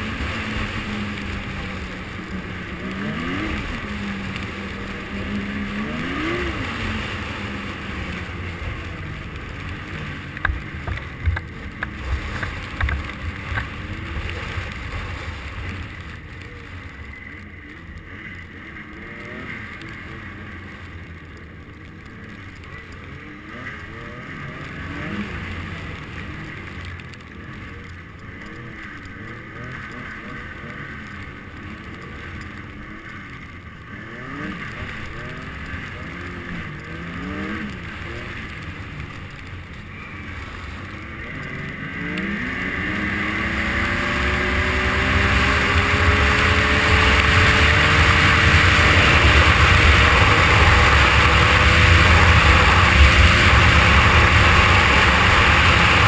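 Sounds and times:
rushing wind: 0.0 - 17.1, 41.9 - 56.0
snowmobile engine revving: 0.0 - 56.0.

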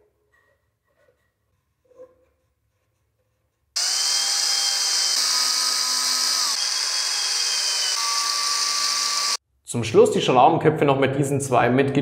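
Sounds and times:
cordless drill driving screws: 3.8 - 9.4.

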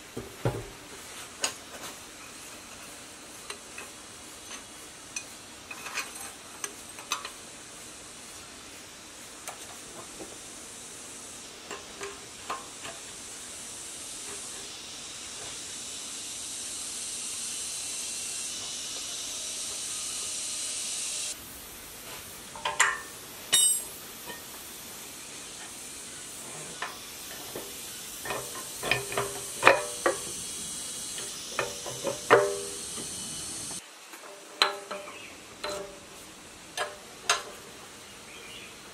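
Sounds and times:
steady high hiss: 0.0 - 38.9
metal parts clinking: 22.6 - 24.4.

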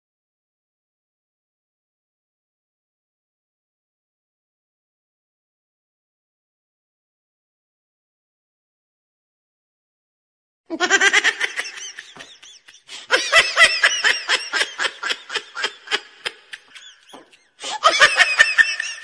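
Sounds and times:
high-pitched giggling laughter: 10.7 - 19.0.

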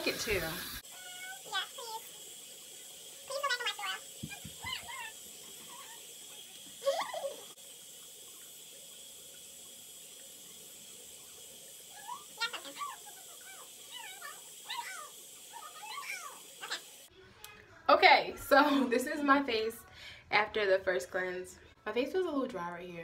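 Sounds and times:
water running from tap into sink: 0.0 - 17.1
high-pitched squeaky vocal sounds: 12.0 - 16.8.

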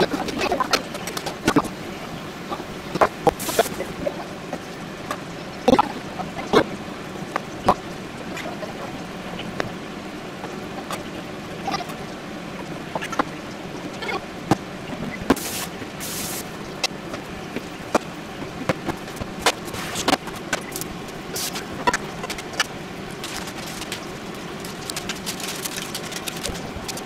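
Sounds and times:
short hissing: 15.4 - 16.5.

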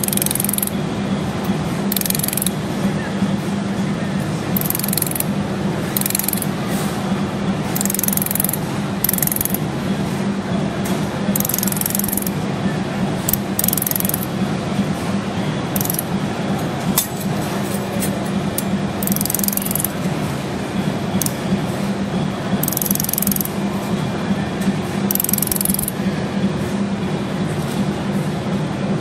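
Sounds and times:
laser welder clicking pulses: 0.0 - 0.7, 1.9 - 2.5, 4.6 - 5.2, 6.0 - 6.5, 7.8 - 9.6, 11.4 - 12.3, 13.3 - 14.2, 15.8 - 16.0, 19.0 - 19.9, 22.6 - 23.5, 25.1 - 25.9.

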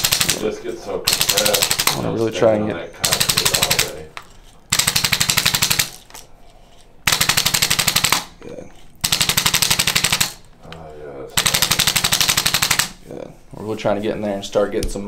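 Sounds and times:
rapid mechanical tapping: 0.0 - 0.5, 1.1 - 2.0, 3.0 - 4.0, 4.7 - 6.0, 7.1 - 8.3, 9.0 - 10.4, 11.4 - 13.0.

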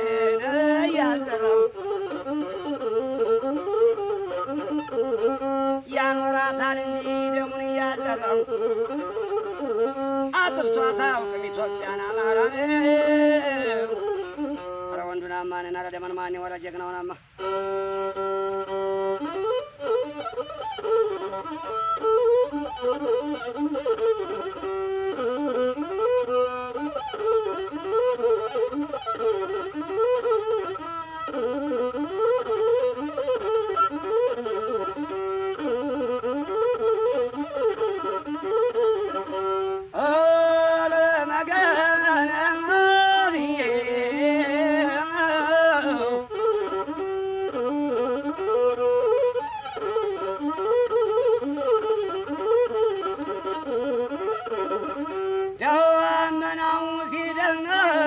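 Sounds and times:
bowed one-string fiddle melody: 0.0 - 58.0.

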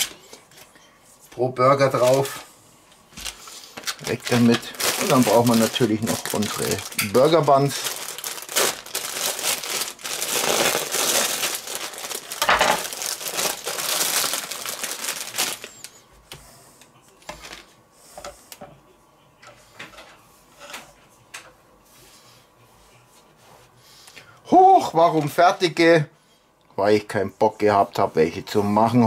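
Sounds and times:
plastic packaging crinkling and tearing: 1.8 - 2.5, 3.2 - 16.0.

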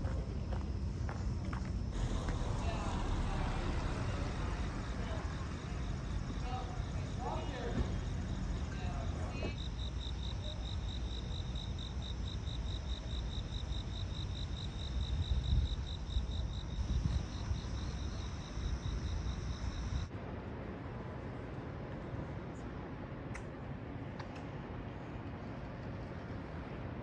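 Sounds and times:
night insects chirping: 0.0 - 20.1
low rumble: 1.9 - 9.3.

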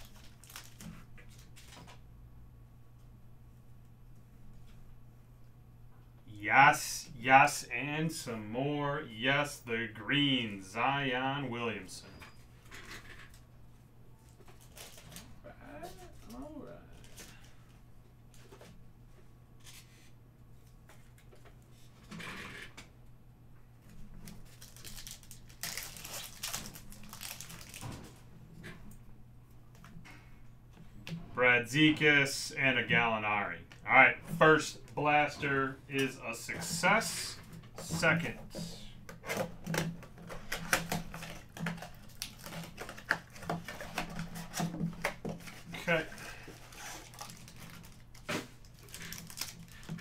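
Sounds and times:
foil wrapper crinkling: 0.0 - 1.9, 14.6 - 15.3, 23.9 - 28.1, 39.6 - 50.0
low steady hum: 0.0 - 50.0.

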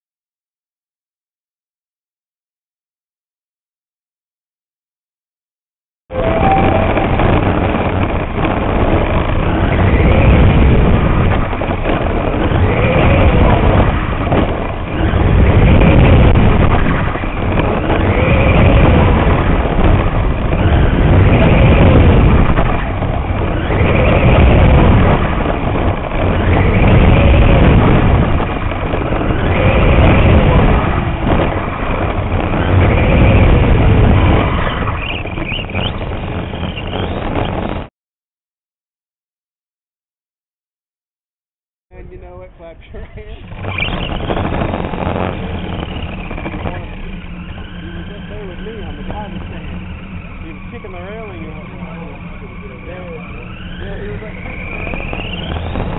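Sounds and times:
chassis rumbling on dirt: 6.1 - 37.9, 41.9 - 55.9
rc car motor whine: 6.2 - 37.8, 42.9 - 55.9.

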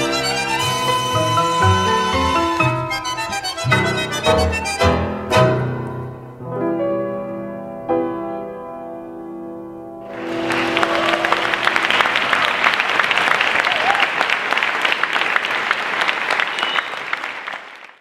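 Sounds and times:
tango music chord: 0.0 - 12.3
audience applause: 10.1 - 18.0.

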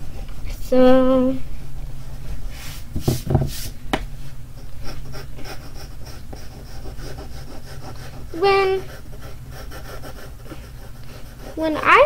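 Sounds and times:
hand sweeping across paper: 2.2 - 4.4
pencil scratching on paper: 4.6 - 12.0.

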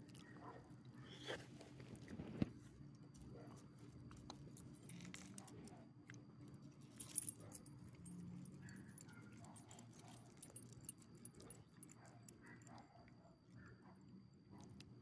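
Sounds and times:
collar tags jingling: 6.9 - 11.7.

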